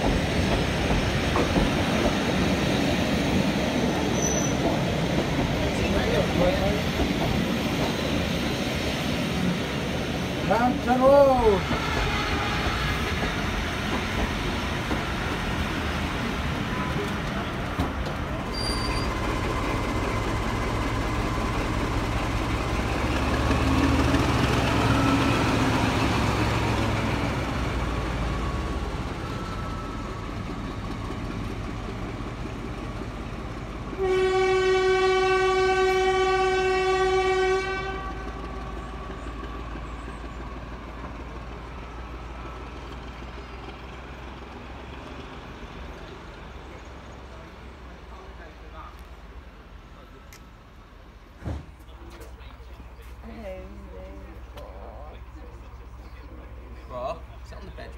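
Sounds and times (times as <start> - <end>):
train engine rumble: 0.0 - 57.9
diesel locomotive horn: 11.8 - 13.2, 33.9 - 39.3.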